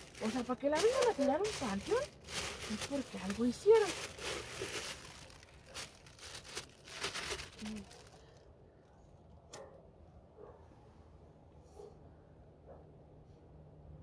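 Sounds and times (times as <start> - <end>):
crinkly material rustling: 0.0 - 8.4.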